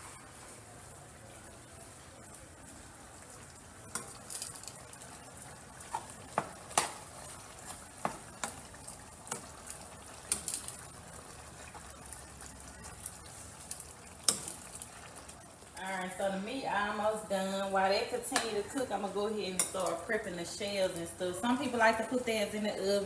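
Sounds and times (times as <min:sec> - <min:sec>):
meat sizzling in a skillet: 0:03.6 - 0:17.0.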